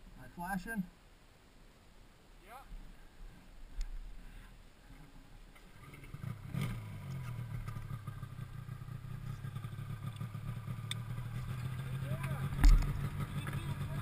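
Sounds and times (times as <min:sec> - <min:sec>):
snowmobile engine idling: 0:04.3 - 0:14.0.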